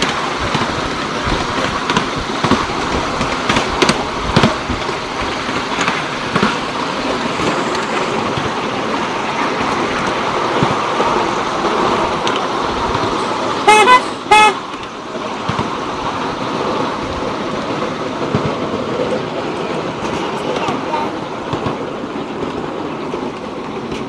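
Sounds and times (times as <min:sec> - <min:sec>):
miniature train rattling on track: 0:00.0 - 0:24.0
locomotive horn toots: 0:13.6 - 0:14.8.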